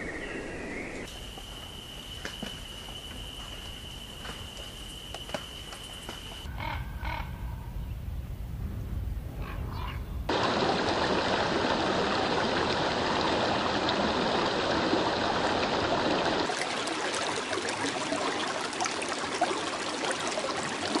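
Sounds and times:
stream water rushing: 10.3s - 21.0s.

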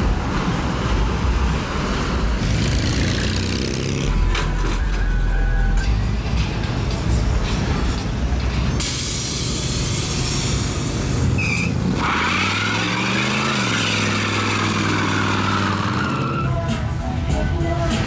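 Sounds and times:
loud hiss: 8.8s - 11.3s
tyre squealing: 11.3s - 16.6s.

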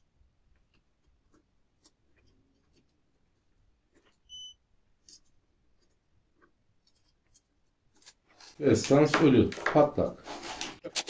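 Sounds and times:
multimeter beep: 4.3s - 4.6s.

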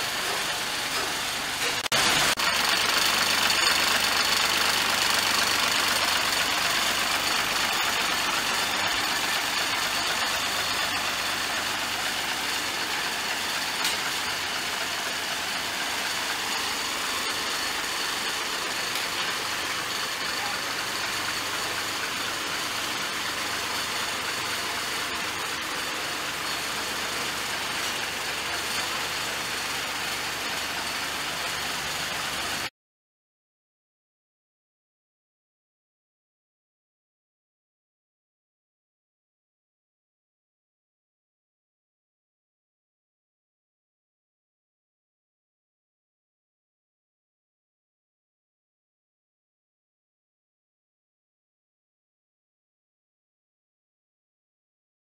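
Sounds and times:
diesel truck engine idling: 0.0s - 32.7s.

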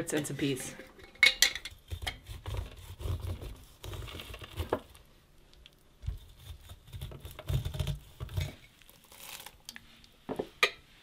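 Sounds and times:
knife scraping corn: 1.8s - 4.8s, 6.1s - 9.4s.

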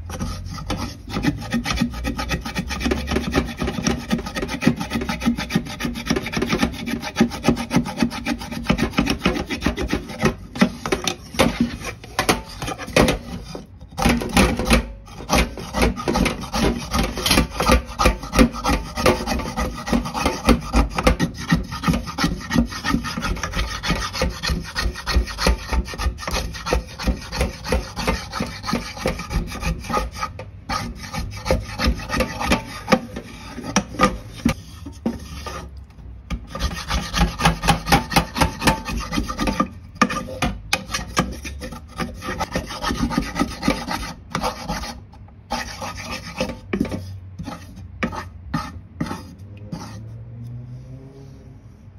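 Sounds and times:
spatula scraping burnt pan: 0.0s - 50.2s.

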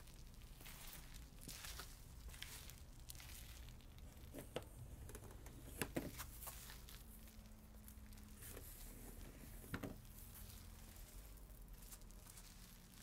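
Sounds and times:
city noise hum: 0.3s - 13.0s.

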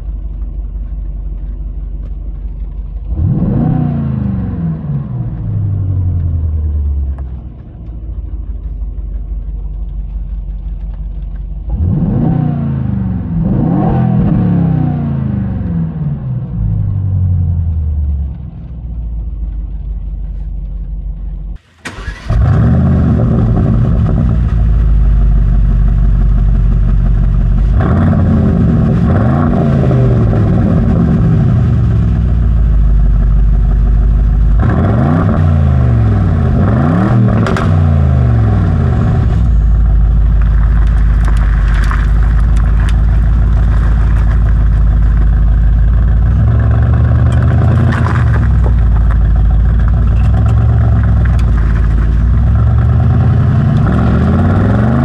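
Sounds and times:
car engine idling and revving: 0.0s - 55.0s.

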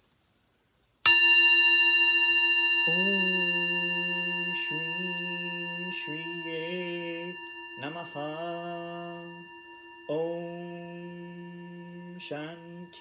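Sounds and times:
bell-like tone ringing: 1.1s - 13.0s
man chanting low note: 2.9s - 9.5s, 10.1s - 13.0s.

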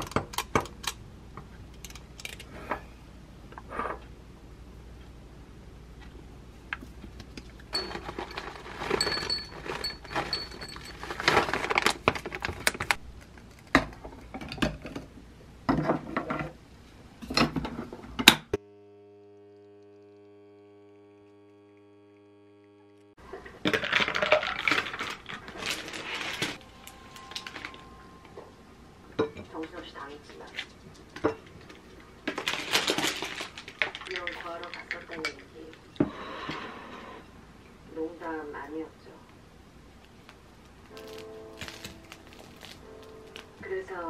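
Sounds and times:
steady low hum: 0.0s - 23.7s, 24.8s - 33.9s
clattering: 7.7s - 13.0s.

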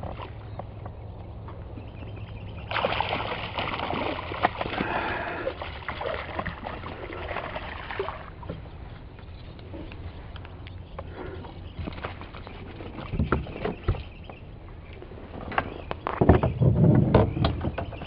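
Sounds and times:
water splashing and churning: 0.0s - 10.4s, 11.1s - 14.4s.

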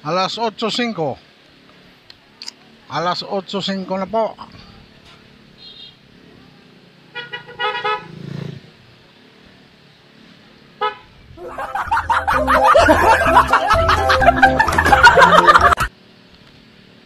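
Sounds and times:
faint street hum: 0.0s - 17.0s
vehicle horns tooting: 5.6s - 6.0s, 7.2s - 8.1s
loud music with heavy beat: 11.9s - 15.9s.

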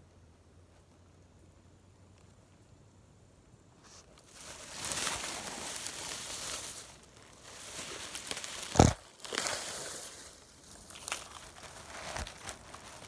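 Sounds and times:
crinkling rustling: 3.9s - 13.0s.

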